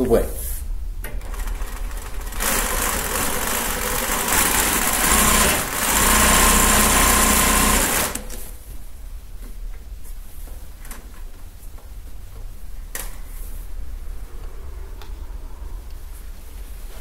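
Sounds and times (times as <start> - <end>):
sewing machine stitching: 1.2 - 8.5.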